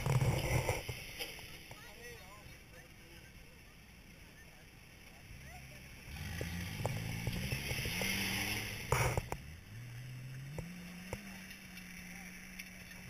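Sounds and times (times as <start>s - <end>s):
engine revving under load: 5.9s - 13.0s.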